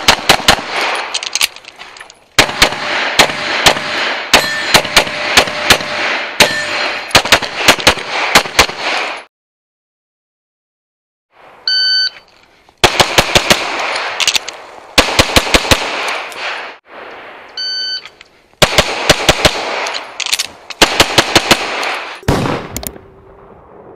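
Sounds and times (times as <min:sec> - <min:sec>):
rapid pistol shots: 0:00.0 - 0:01.2, 0:02.4 - 0:09.3, 0:12.8 - 0:14.2, 0:15.0 - 0:16.8, 0:18.6 - 0:20.2, 0:20.8 - 0:22.7
shot timer beeps: 0:11.7 - 0:12.2, 0:17.6 - 0:18.1.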